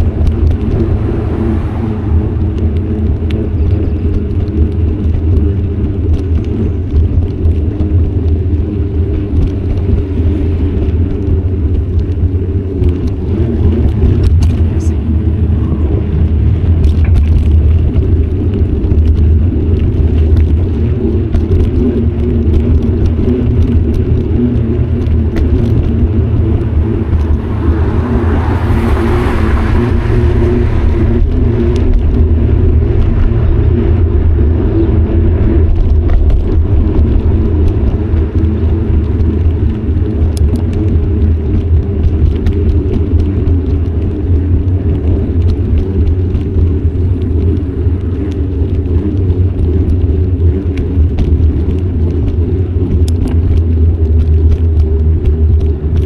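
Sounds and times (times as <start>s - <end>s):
car passing: 0.0s - 5.2s, 25.0s - 41.6s
bicycle rattles and clicks: 0.0s - 56.0s
wind and road rumble: 0.0s - 56.0s.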